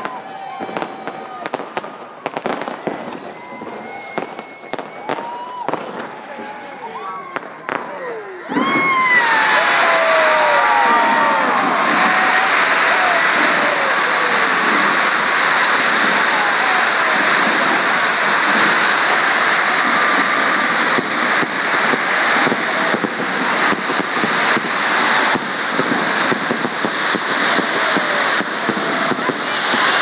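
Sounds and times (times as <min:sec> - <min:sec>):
firework crackles and pops: 0:00.0 - 0:30.0
spark fountain hissing: 0:08.6 - 0:30.0.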